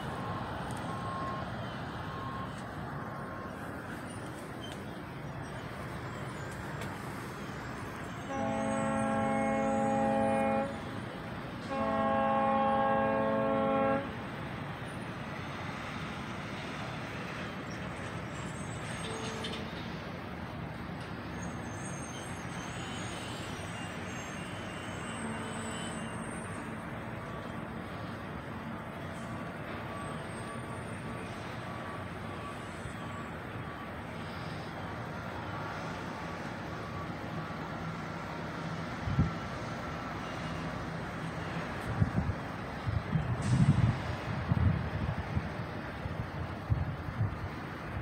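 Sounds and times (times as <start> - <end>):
outdoor background noise: 0.0 - 48.0
distant horn blasts: 8.2 - 11.0, 11.6 - 14.2.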